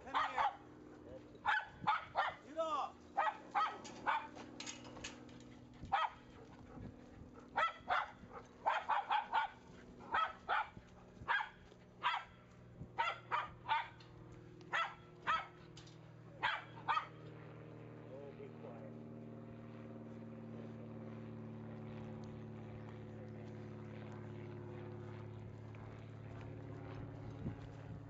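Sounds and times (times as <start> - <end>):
dog barking: 0.0 - 0.6, 1.4 - 2.4, 3.2 - 4.4, 5.9 - 6.8, 7.4 - 12.4, 13.0 - 14.0, 14.7 - 15.6, 16.4 - 17.2.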